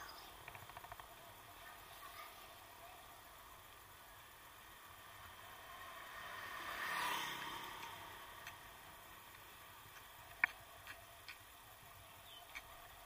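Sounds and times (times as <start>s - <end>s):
vehicle passing: 4.4s - 11.1s.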